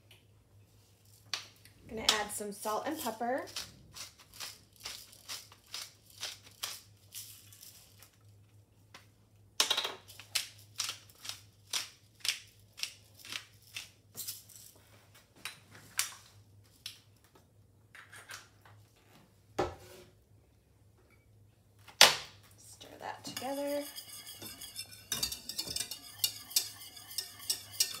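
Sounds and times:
pepper mill grinding: 0:02.9 - 0:08.2, 0:23.2 - 0:28.0.

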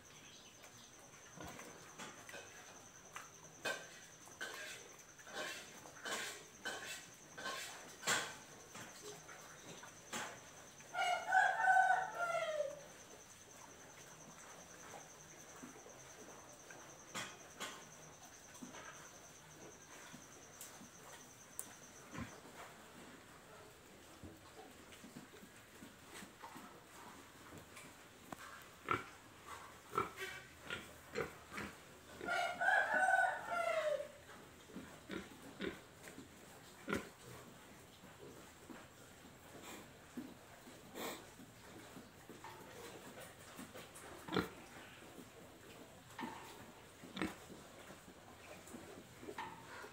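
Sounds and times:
faint high insect trill: 0:00.0 - 0:22.4
pig long call: 0:10.1 - 0:22.4, 0:31.2 - 0:34.2
pig grunting: 0:28.8 - 0:32.4, 0:44.2 - 0:44.9.

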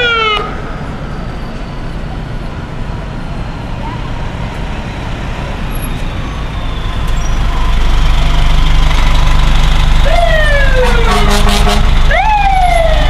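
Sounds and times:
electronic siren wailing: 0:00.0 - 0:00.8, 0:10.0 - 0:13.0
fire engine diesel engine: 0:00.0 - 0:13.0.

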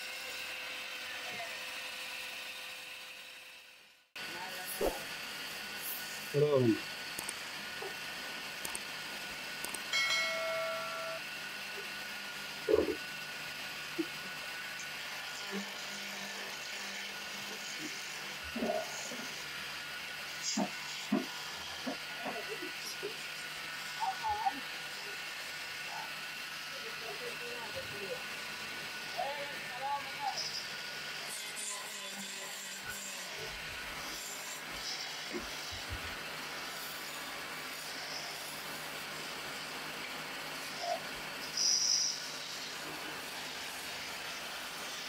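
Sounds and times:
wood lathe motor running: 0:00.0 - 0:45.0
chisel hissing on spinning wood: 0:04.3 - 0:45.0.

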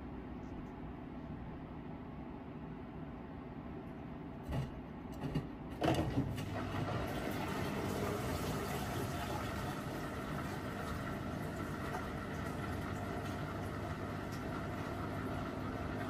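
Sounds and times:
washing machine running: 0:04.4 - 0:16.0.

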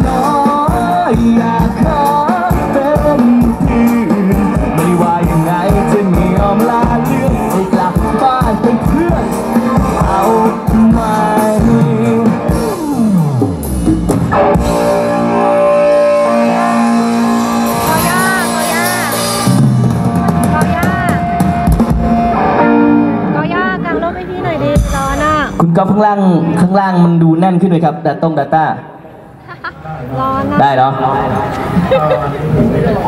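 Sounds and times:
man singing pop: 0:00.0 - 0:13.2
drums: 0:00.0 - 0:26.1
keyboard chords: 0:00.0 - 0:26.6
guitar: 0:00.0 - 0:27.7.

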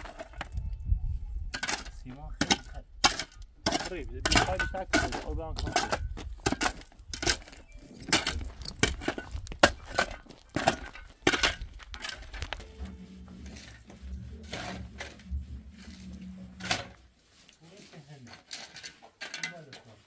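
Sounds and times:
sharp knocks and cracks: 0:01.6 - 0:12.6
low steady hum: 0:08.1 - 0:17.4.

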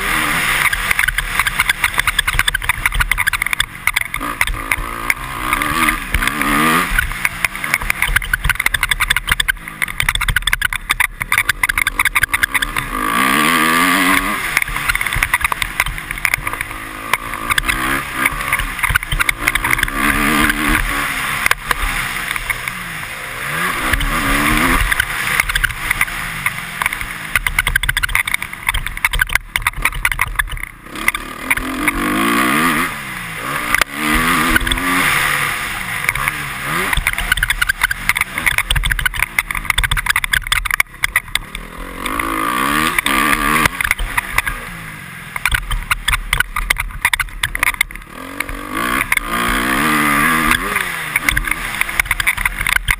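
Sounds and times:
motocross engine revving: 0:00.0 - 0:52.9
knocks over bumps: 0:00.6 - 0:22.8, 0:23.7 - 0:33.0.

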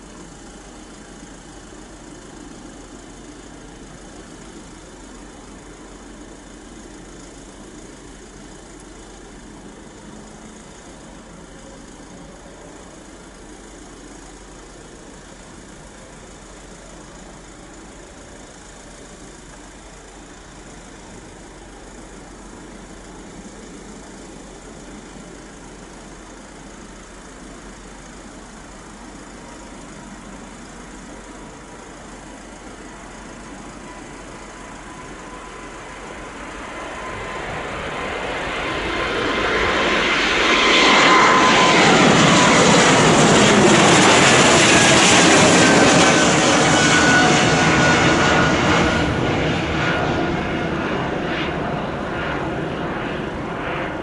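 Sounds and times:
distant jet engines idling: 0:00.0 - 0:54.0.

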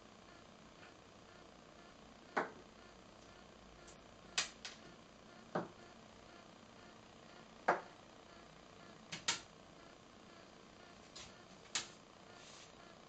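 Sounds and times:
magnets clicking on desk pad: 0:09.1 - 0:09.5, 0:11.7 - 0:12.0.

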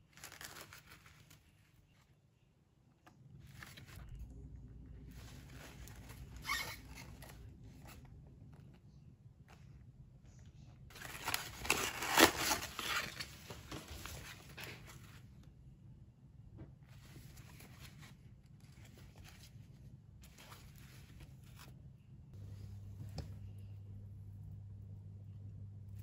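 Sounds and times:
cardboard packaging rustling: 0:00.0 - 0:01.9, 0:10.9 - 0:15.3.

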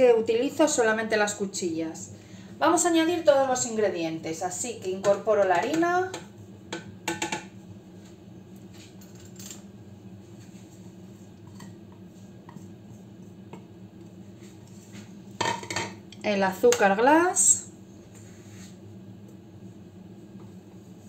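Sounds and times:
low steady hum: 0:00.0 - 0:21.0
plastic bowl knocking on metal jug: 0:06.8 - 0:07.5.

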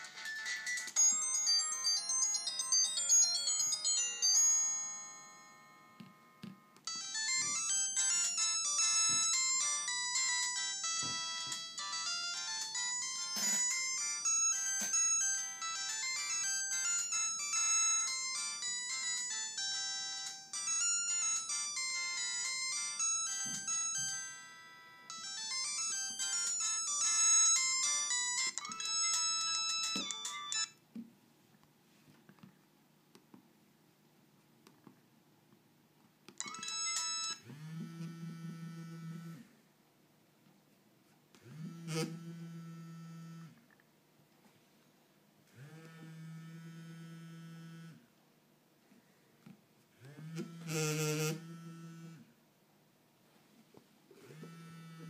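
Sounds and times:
polyphonic phone ringtones: 0:00.0 - 0:30.8, 0:36.4 - 0:39.4.

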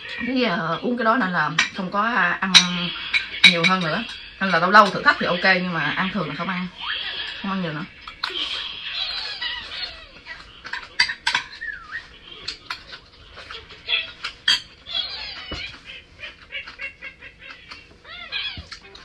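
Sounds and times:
metal spoon scraping ceramic bowl: 0:02.5 - 0:06.4.

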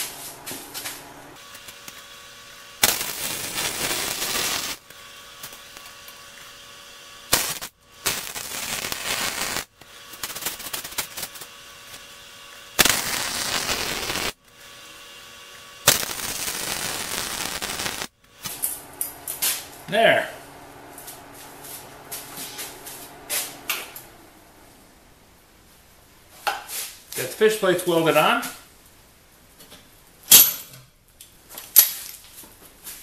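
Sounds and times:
welder arc crackling: 0:00.0 - 0:24.8.

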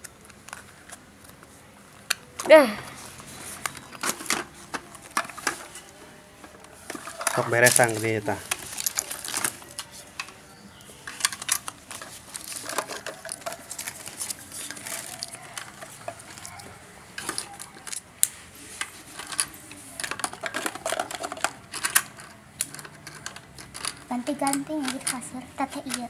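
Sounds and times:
toy cash drawer clicking: 0:03.6 - 0:18.1, 0:18.8 - 0:26.0
plastic coins knocking: 0:06.9 - 0:16.5, 0:19.2 - 0:26.0.

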